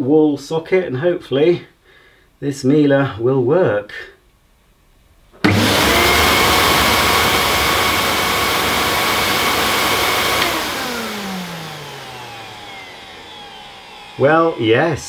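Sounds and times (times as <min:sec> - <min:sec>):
vacuum cleaner motor whining: 0:05.4 - 0:15.0.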